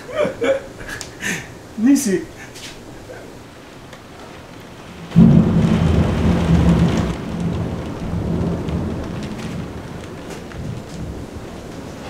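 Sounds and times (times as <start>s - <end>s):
heavy rain: 0.0s - 12.0s
thunder clap and rumble: 3.6s - 12.0s.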